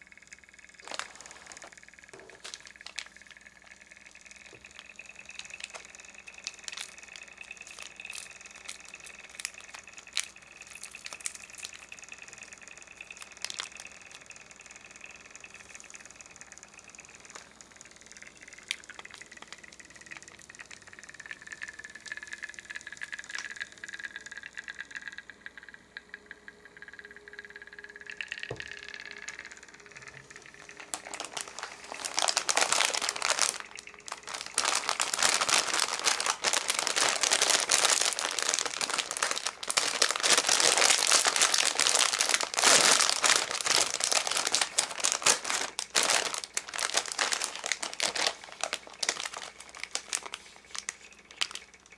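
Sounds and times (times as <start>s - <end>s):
plastic snack bag crinkling: 0.8s - 15.9s, 16.8s - 22.1s, 28.4s - 51.9s.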